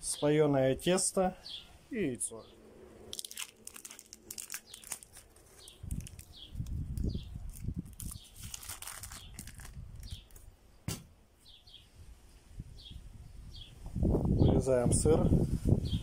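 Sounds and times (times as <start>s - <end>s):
plastic wrap crinkling and tearing: 3.1s - 10.4s
small bird chirping: 3.2s - 14.6s.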